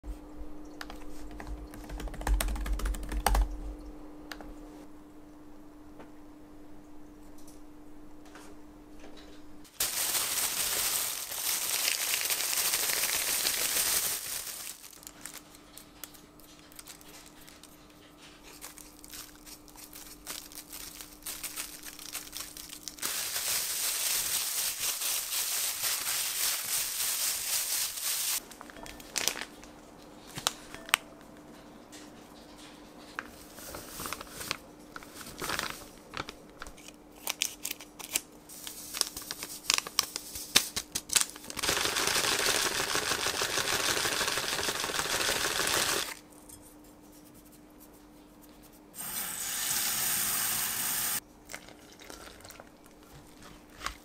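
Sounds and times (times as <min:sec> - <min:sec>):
faint steady hum: 0:00.1 - 0:27.2
plastic bag crinkling: 0:09.7 - 0:29.8, 0:33.6 - 0:46.2.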